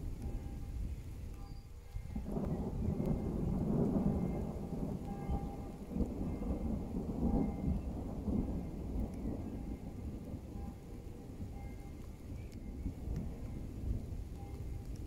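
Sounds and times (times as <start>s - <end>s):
rain falling: 0.0s - 15.0s
thunder rumbling: 0.0s - 15.0s.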